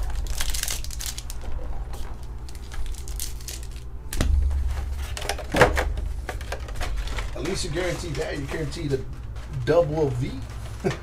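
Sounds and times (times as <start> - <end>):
plastic trays crackling: 0.0 - 11.0
steady low hum: 0.0 - 11.0.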